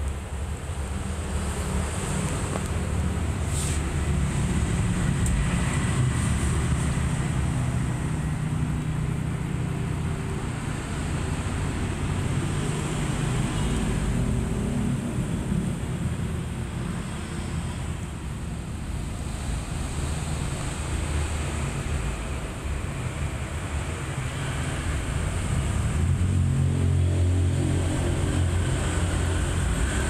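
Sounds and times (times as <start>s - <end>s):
brief hiss: 3.5s - 3.9s.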